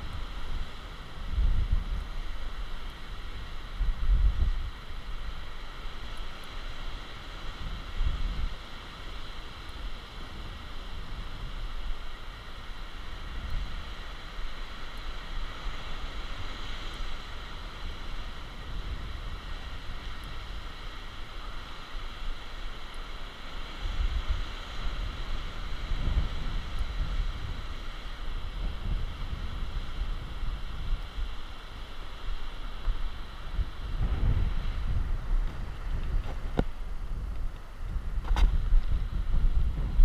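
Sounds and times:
sea surf: 0.0s - 40.0s
wind buffeting microphone: 0.0s - 40.0s.

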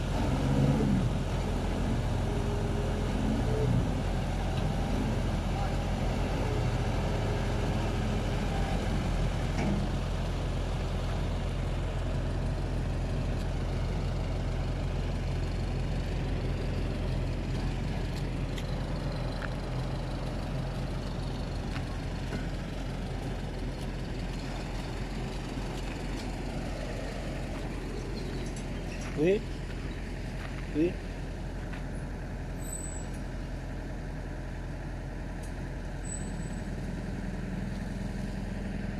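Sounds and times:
truck engine driving off: 0.0s - 38.9s.

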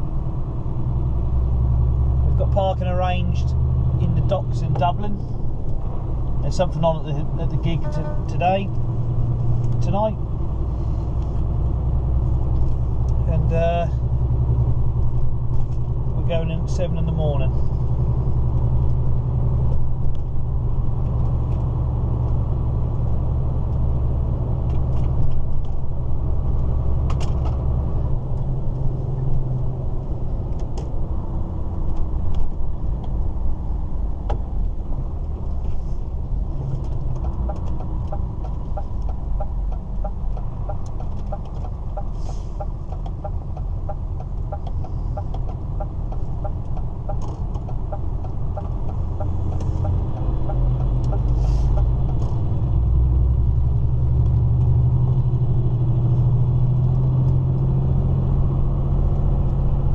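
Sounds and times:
tyre and road noise: 0.0s - 59.9s
truck diesel engine running: 35.0s - 54.2s
light regular ticking: 36.9s - 52.2s.

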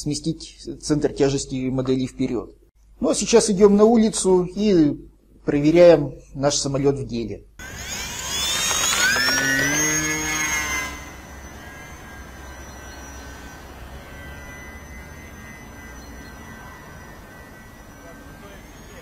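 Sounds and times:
model plane motor whining: 7.6s - 19.0s.

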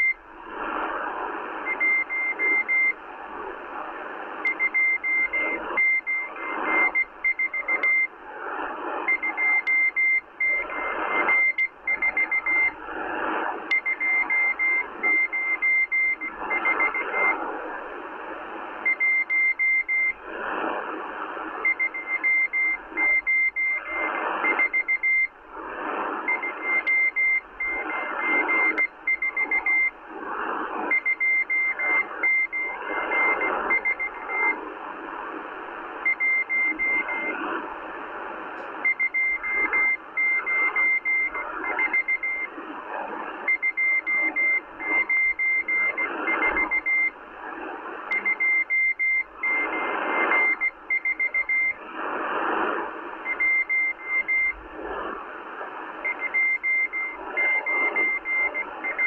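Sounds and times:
morse code beeps: 0.0s - 0.3s, 1.6s - 3.0s, 4.4s - 8.2s, 9.0s - 12.8s, 13.7s - 17.4s, 18.8s - 20.2s, 21.6s - 30.0s, 30.8s - 34.6s, 36.0s - 37.5s, 38.8s - 42.6s, 43.4s - 47.2s, 48.1s - 51.9s, 53.2s - 54.6s, 56.0s - 59.0s
shortwave radio static: 0.0s - 59.0s.

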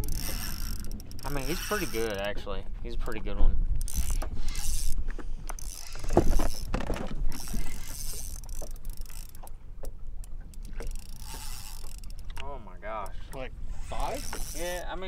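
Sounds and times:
fishing reel clicking: 0.0s - 2.2s, 3.8s - 9.6s, 10.2s - 12.4s, 13.0s - 15.0s.

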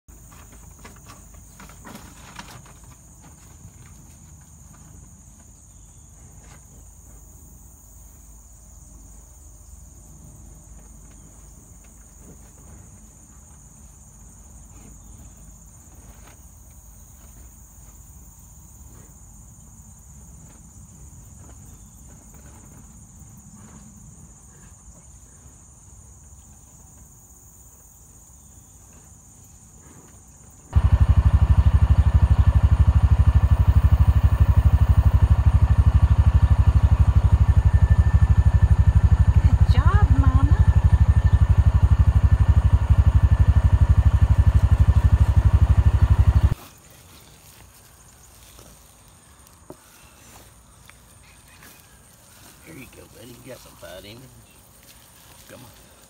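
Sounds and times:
insects trilling: 0.1s - 56.0s
faint low rumble: 30.8s - 46.6s
loud low noise: 30.8s - 46.6s.

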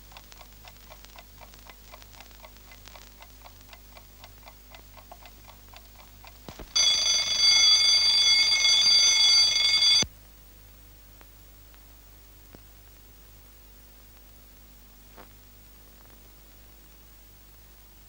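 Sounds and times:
alarm clock ticking: 3.4s - 10.1s
alarm clock bell ringing: 6.8s - 10.1s.

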